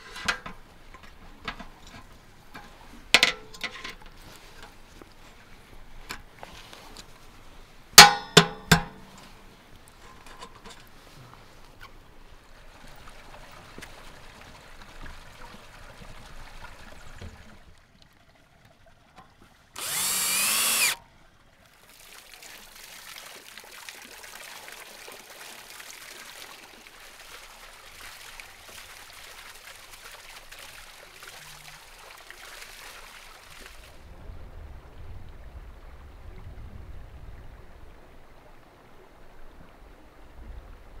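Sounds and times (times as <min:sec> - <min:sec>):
water splashing onto water wheel: 0:12.8 - 0:21.0, 0:21.6 - 0:34.0
loud whirring burst: 0:19.8 - 0:21.0.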